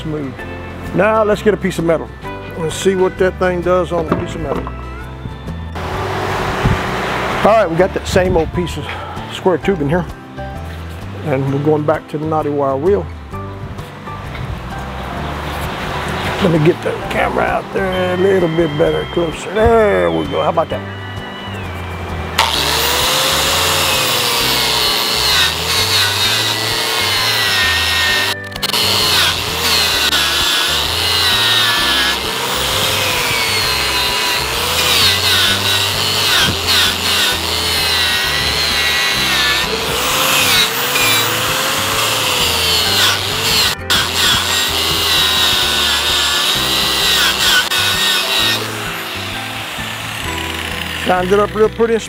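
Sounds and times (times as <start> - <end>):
angle grinder wire brush on steel: 22.4 - 51.7.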